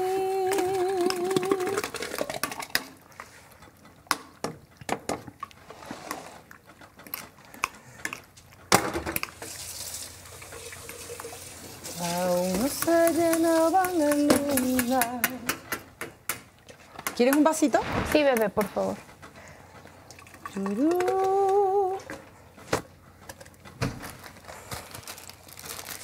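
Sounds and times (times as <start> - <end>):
person singing: 0.0 - 1.9, 11.9 - 15.6, 20.5 - 22.2.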